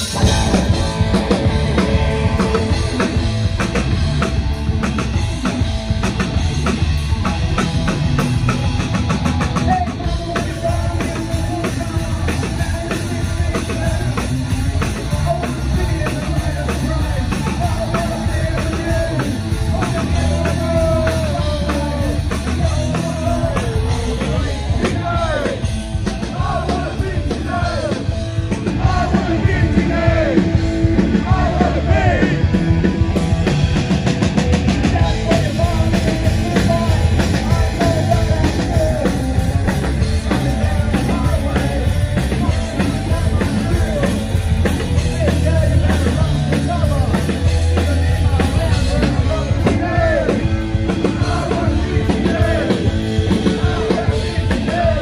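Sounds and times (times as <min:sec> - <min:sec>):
drum kit: 0:00.0 - 0:55.0
electric guitars: 0:00.0 - 0:55.0
man singing: 0:09.5 - 0:32.6, 0:34.8 - 0:55.0.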